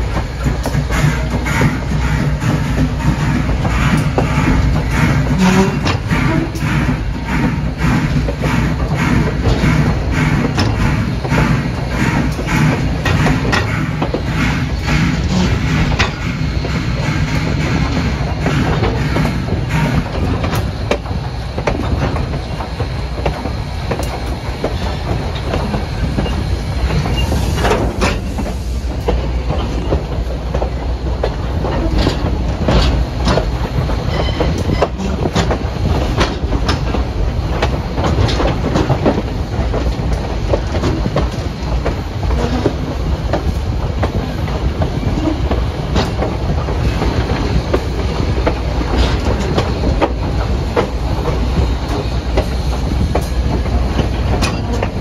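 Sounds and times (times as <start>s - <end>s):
train rumbling: 0.0s - 55.0s
wheels clacking over rail joints: 0.0s - 55.0s.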